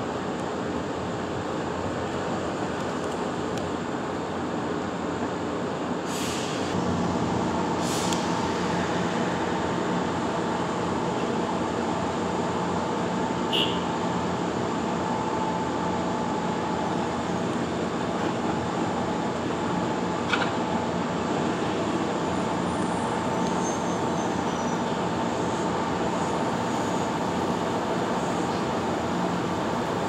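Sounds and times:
train-washing machine running: 6.8 - 30.0.

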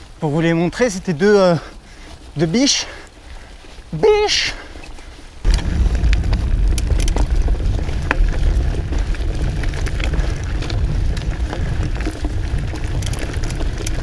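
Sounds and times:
tyres crunching on gravel: 0.0 - 14.0
bike clicks and rattles: 4.6 - 14.0
wind rumble on microphone: 5.4 - 14.0.

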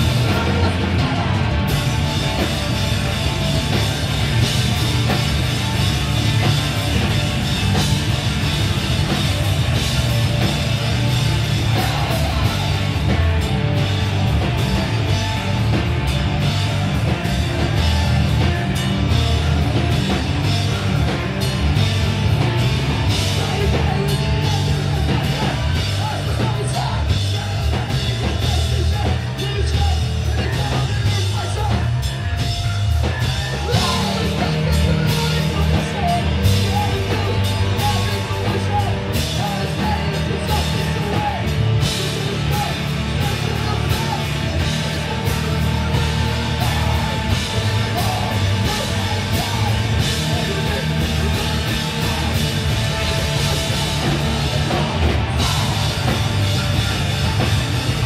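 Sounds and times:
bass guitar: 0.0 - 58.0
distorted electric guitar: 0.0 - 58.0
pounding drums: 0.0 - 58.0
shouted vocals: 22.4 - 58.0.

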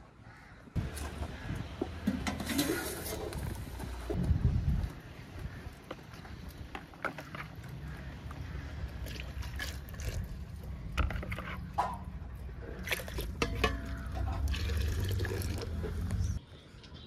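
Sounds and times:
milk pouring and splashing: 8.9 - 11.3, 12.7 - 15.9.

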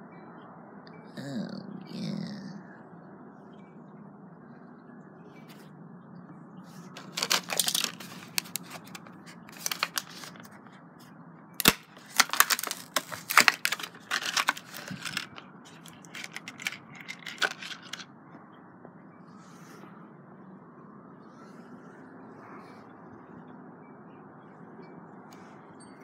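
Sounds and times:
plastic packaging crackling and tearing: 7.0 - 10.6, 11.6 - 18.0.

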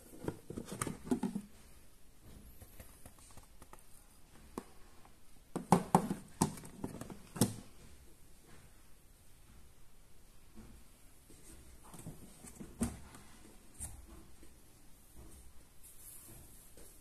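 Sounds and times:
plastic knocks and taps: 0.2 - 1.5, 5.5 - 7.8.

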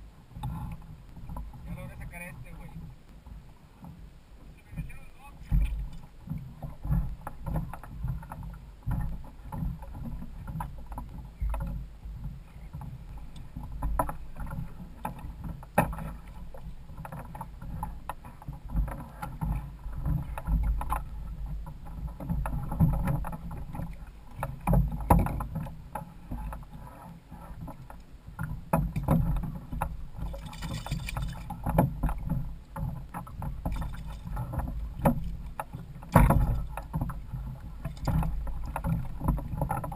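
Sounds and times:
water sloshing against hull: 0.0 - 39.9
knocks on hull: 4.7 - 11.8, 12.8 - 26.6, 28.5 - 39.9
fish splashing: 30.2 - 31.5.

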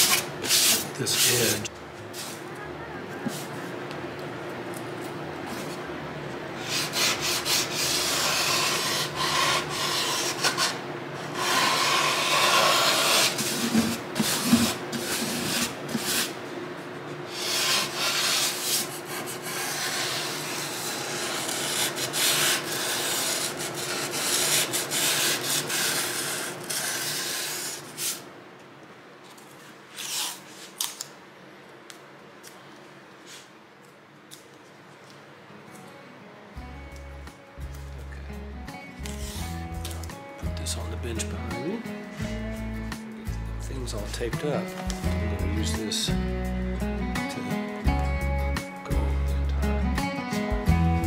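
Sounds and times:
abrasive tool rubbing wood: 6.6 - 16.4, 17.3 - 28.2.

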